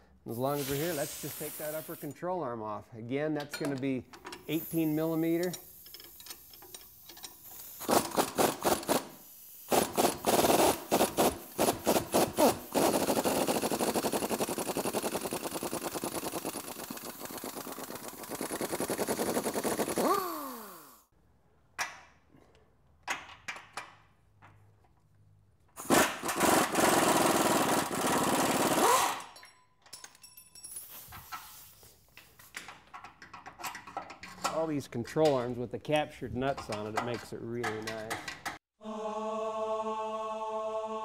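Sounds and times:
air impact wrench hammering: 4.5 - 21.0, 25.8 - 29.4.

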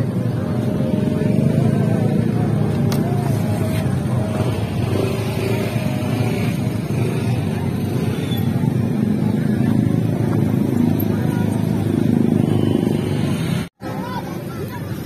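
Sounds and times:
low rumble of engines: 0.0 - 15.0.

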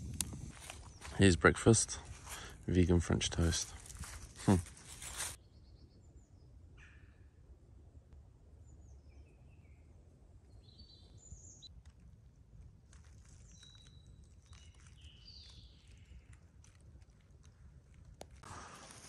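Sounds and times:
small birds chirping: 0.0 - 7.2, 10.5 - 11.7, 12.9 - 18.4.

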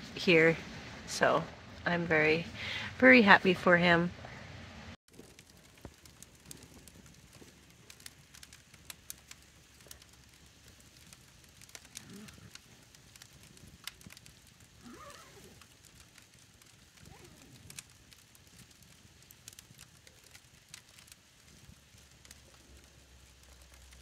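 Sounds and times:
campfire crackling and snapping: 5.1 - 24.0.

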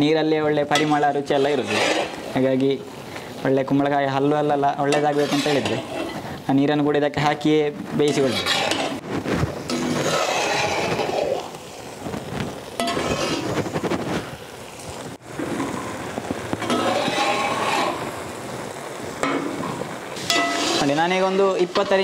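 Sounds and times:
spoon scraping metal pan: 0.6 - 2.4, 4.3 - 6.4, 8.0 - 9.0, 9.7 - 11.6, 12.8 - 13.8, 16.6 - 18.1, 19.2 - 22.0
spoon clinking against pan: 20.3 - 20.6.

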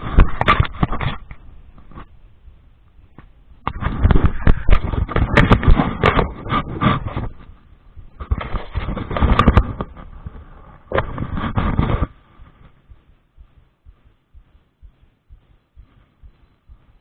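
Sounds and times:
faint low thumps: 9.4 - 17.0.

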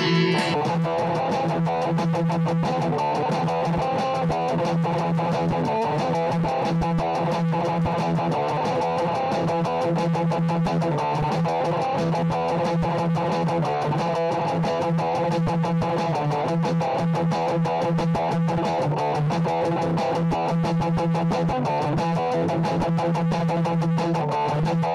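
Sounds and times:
low accompaniment: 0.0 - 1.0
electric guitar melody: 0.0 - 24.9.

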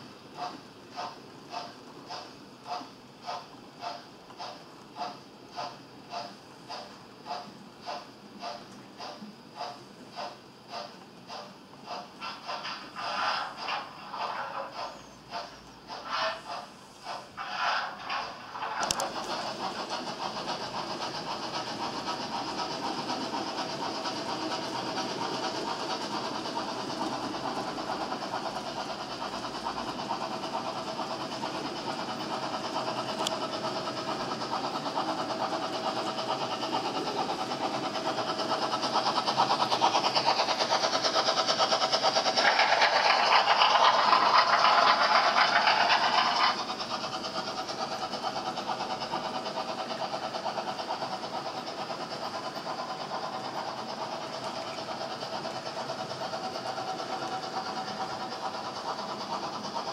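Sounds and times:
model trains rolling on track: 0.0 - 59.9.

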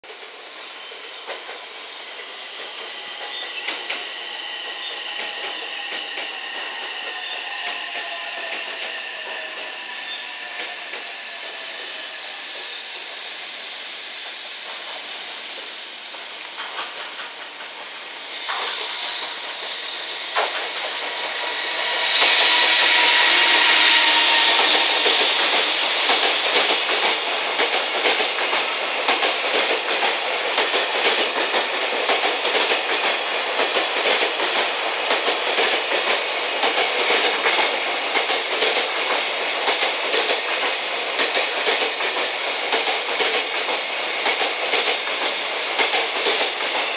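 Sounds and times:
train wheels clickety-clack: 0.0 - 46.9
electric locomotive passing: 0.1 - 46.9
rushing hiss: 0.2 - 46.9.

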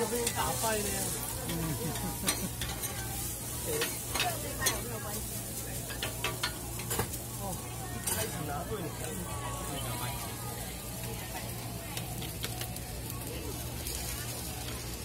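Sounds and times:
metal spatulas scraping griddle: 0.0 - 7.2
hash browns sizzling on griddle: 0.0 - 15.0.

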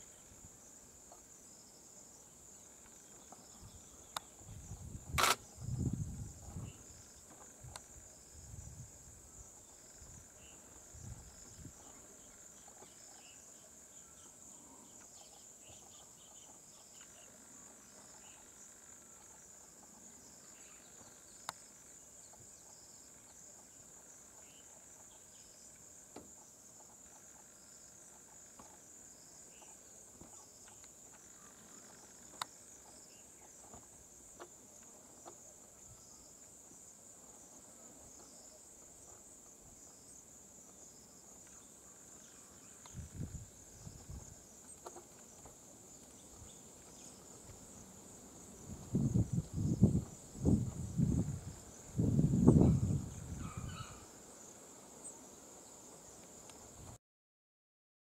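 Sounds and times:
high-pitched insect chorus: 0.0 - 56.9
sharp clicks: 5.2 - 5.4.

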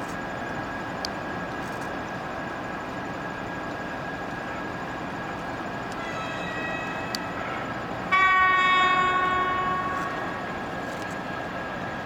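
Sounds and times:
electric locomotive horn: 5.9 - 11.0.

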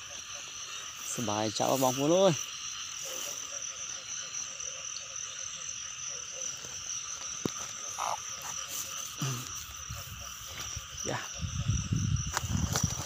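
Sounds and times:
frogs calling in chorus: 0.0 - 13.0.

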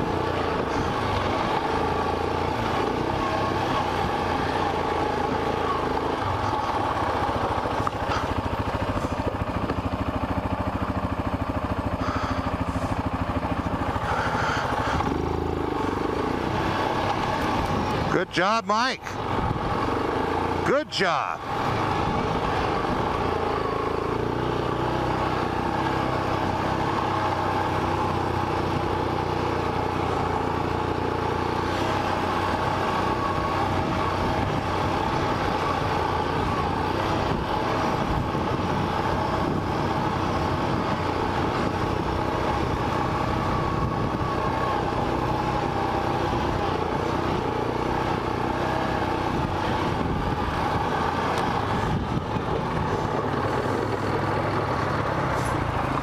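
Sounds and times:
quad engine running: 0.0 - 56.0.

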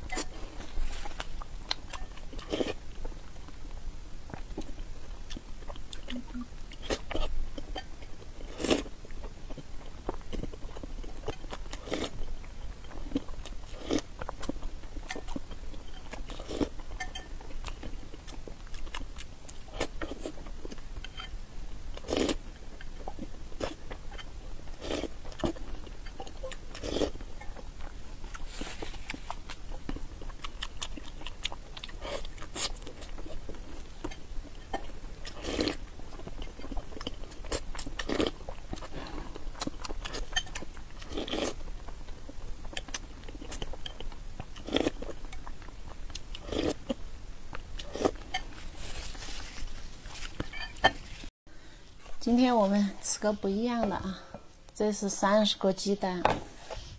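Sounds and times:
wet chewing: 4.3 - 21.3, 21.9 - 51.3
metal spoon scraping ceramic bowl: 50.4 - 51.1.

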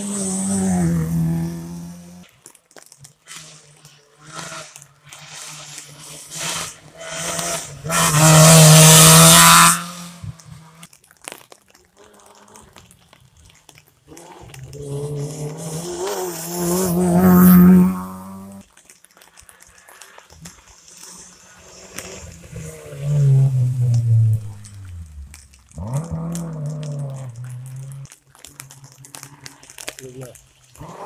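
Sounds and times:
rally cars revving past: 0.0 - 2.2, 4.2 - 10.8, 14.7 - 18.6, 21.1 - 28.0
tyres hissing on wet road: 3.2 - 10.8, 14.2 - 31.0.

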